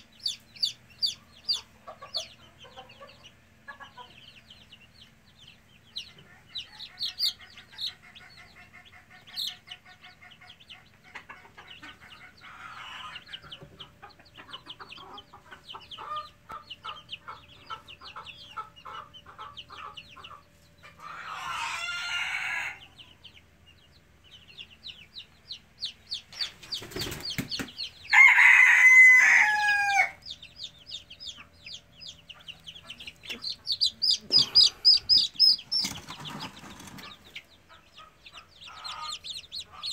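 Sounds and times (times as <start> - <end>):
chicks peeping and clucking: 0.0 - 39.9
young cockerel crowing: 21.1 - 22.8, 28.1 - 30.2.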